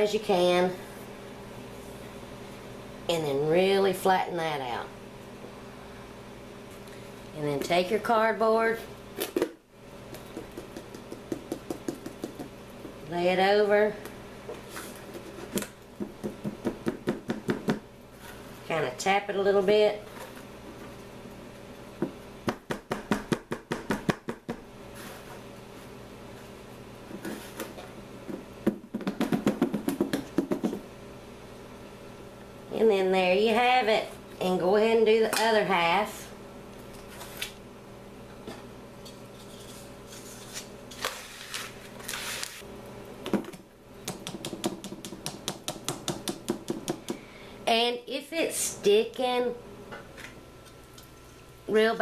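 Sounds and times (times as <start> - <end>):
hands scraping sugar mix: 39.4 - 42.7.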